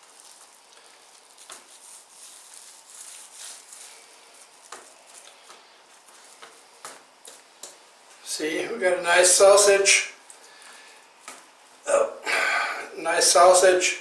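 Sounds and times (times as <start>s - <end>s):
foil rustling and crinkling: 0.0s - 7.8s.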